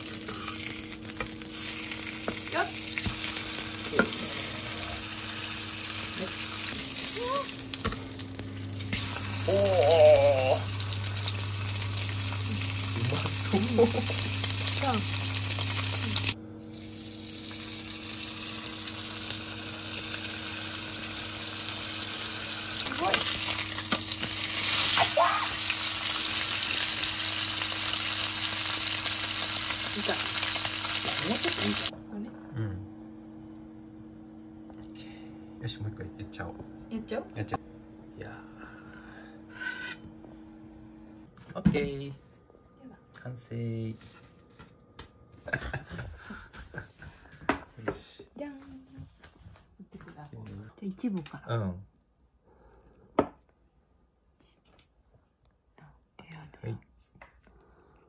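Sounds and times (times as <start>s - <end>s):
steak sizzling in a frying pan: 0.0s - 31.9s.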